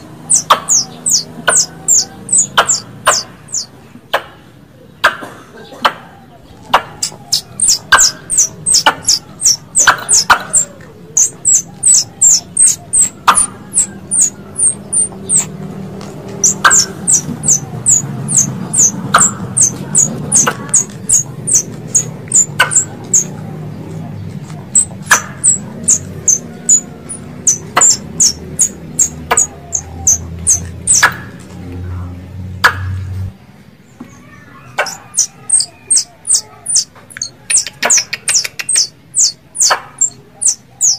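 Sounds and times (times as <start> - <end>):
squirrel chirping: 0.0 - 4.3, 6.5 - 23.6, 24.6 - 31.4, 34.6 - 40.9
sharp clicks: 6.7 - 23.4, 34.8 - 40.6.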